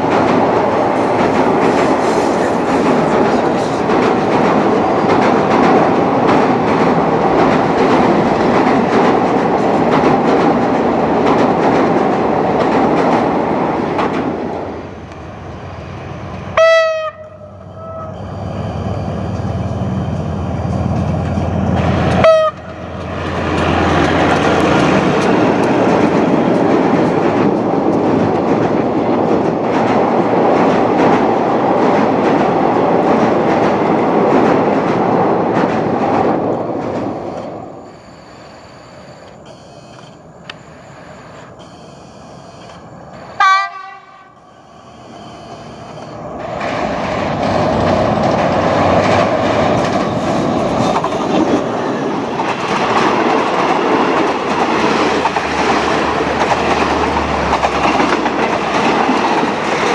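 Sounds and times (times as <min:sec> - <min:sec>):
diesel locomotive rumble: 0:00.0 - 0:59.9
train rumbling over bridge: 0:00.0 - 0:59.9
diesel locomotive horn blasts: 0:16.5 - 0:19.9, 0:22.0 - 0:23.0, 0:43.2 - 0:46.0.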